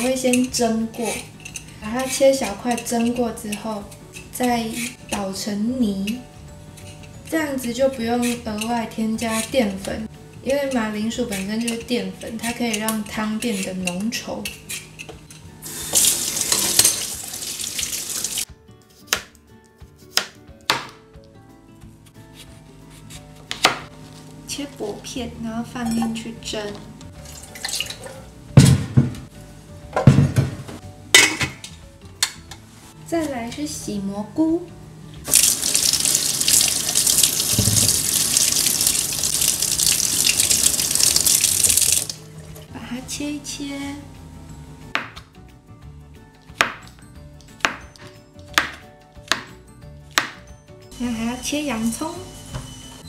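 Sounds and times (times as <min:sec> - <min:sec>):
kitchen tap running: 0:15.6 - 0:18.4, 0:35.2 - 0:42.6.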